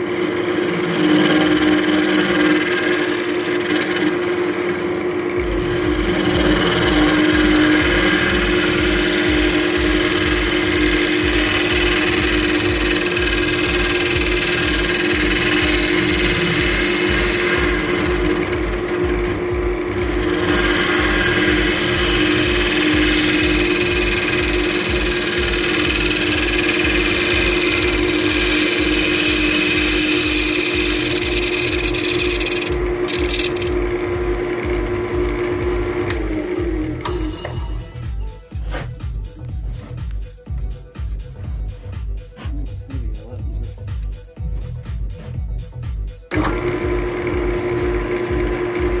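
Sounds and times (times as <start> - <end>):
gouge cutting hiss: 0.0 - 19.4, 20.0 - 33.8
wood lathe hum: 0.0 - 38.3, 43.2 - 49.0.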